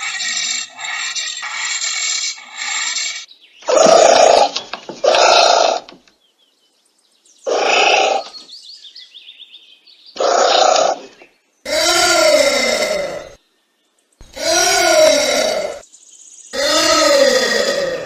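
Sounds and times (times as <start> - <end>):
anteater harsh calls: 3.6 - 5.9, 7.5 - 8.4, 10.2 - 11.1, 11.7 - 13.4, 14.2 - 15.8, 16.6 - 18.0.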